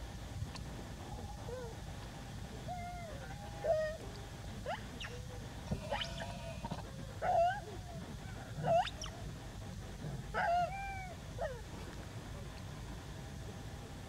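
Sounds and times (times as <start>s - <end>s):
infant monkey whimpering calls: 4.6s - 9.3s.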